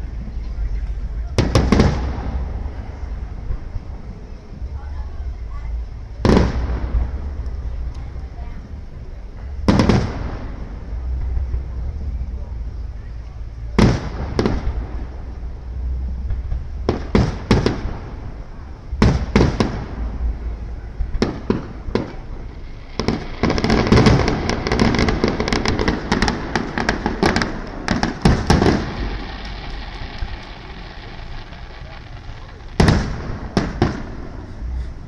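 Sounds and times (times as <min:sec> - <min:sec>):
firework bangs and crackling: 0:00.0 - 0:35.0
firework shells booming: 0:01.2 - 0:03.9, 0:06.1 - 0:07.8, 0:09.6 - 0:11.8, 0:13.6 - 0:35.0.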